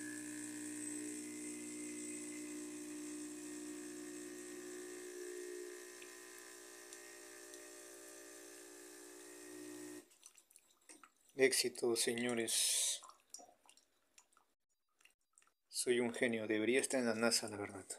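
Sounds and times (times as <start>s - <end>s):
water pump humming: 0.0s - 13.8s.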